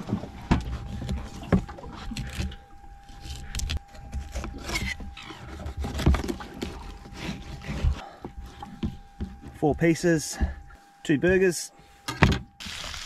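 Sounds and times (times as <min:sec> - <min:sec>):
faint high hum: 0:00.0 - 0:13.0
knocks and scrapes on bait board: 0:04.0 - 0:09.6.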